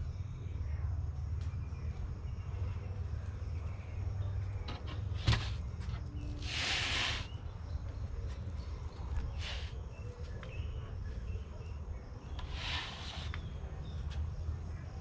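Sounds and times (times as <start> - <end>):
brief hiss: 6.4 - 7.3.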